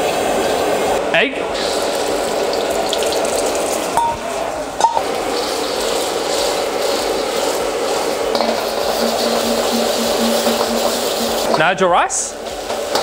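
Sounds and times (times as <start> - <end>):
wok burner rushing: 0.0 - 13.0
egg sizzling in hot oil: 1.6 - 4.0, 5.0 - 11.6, 12.4 - 13.0.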